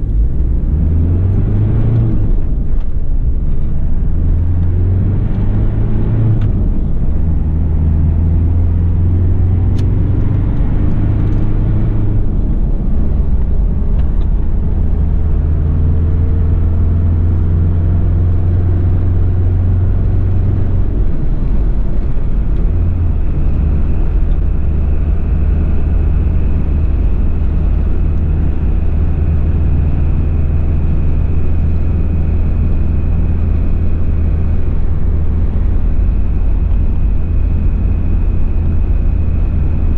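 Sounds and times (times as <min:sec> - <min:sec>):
low engine drone: 0:00.0 - 0:39.9
road and wind noise: 0:00.0 - 0:39.9.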